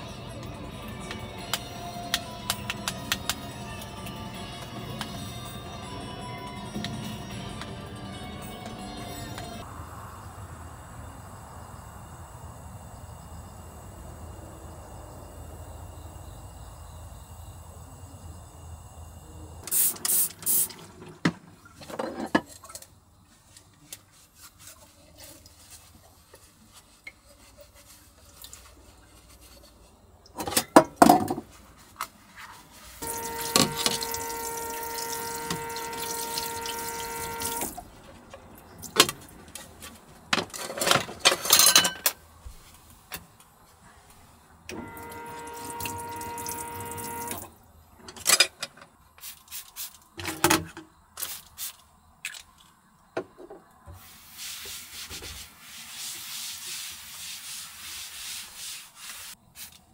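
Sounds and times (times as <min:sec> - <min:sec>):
water running from tap: 0:33.0 - 0:37.8, 0:45.0 - 0:47.5
steady hum: 0:33.0 - 0:38.0.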